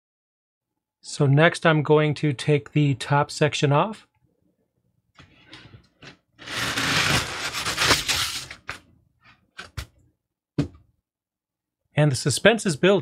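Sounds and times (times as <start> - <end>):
foam scraping against cardboard box: 6.4 - 8.7.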